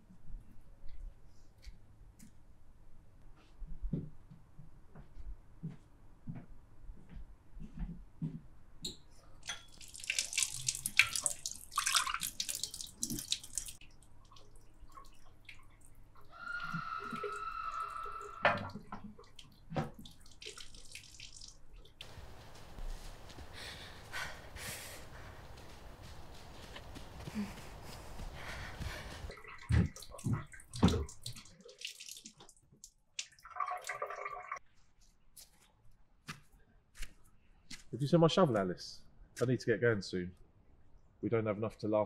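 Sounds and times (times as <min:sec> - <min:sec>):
water running from a tap: 0:09.5 - 0:15.7, 0:19.3 - 0:22.0, 0:29.4 - 0:34.6
hissing outdoor ambience: 0:19.5 - 0:29.8.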